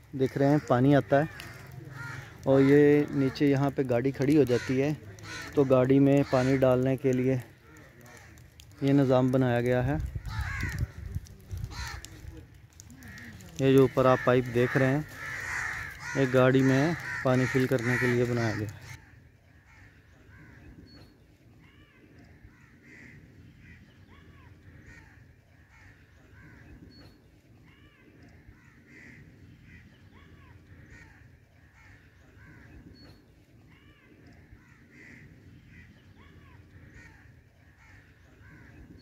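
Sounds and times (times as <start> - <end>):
crows cawing: 0.1 - 20.9, 21.6 - 27.0, 27.6 - 39.0.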